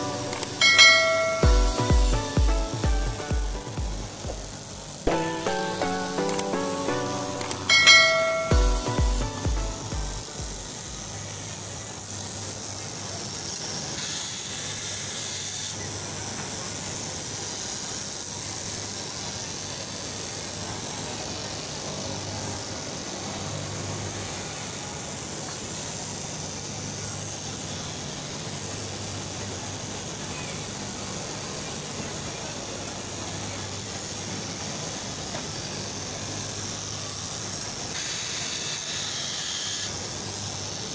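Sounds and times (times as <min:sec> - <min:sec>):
cloth cutting machine running: 0:00.0 - 0:40.9.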